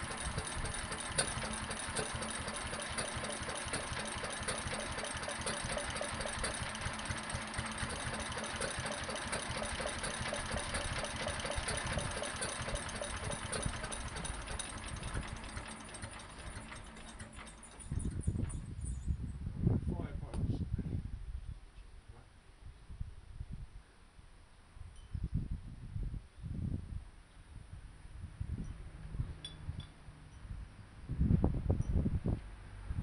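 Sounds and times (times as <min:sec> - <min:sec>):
stationary engine knocking: 0:00.0 - 0:18.6.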